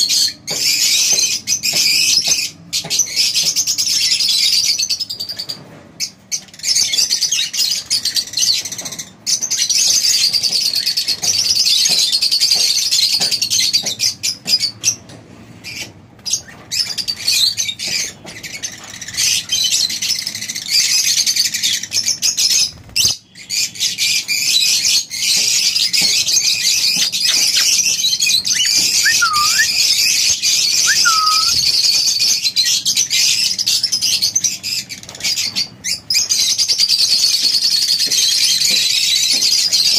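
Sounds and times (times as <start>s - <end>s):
flock of lovebirds chattering: 26.8s - 29.7s, 30.8s - 31.7s.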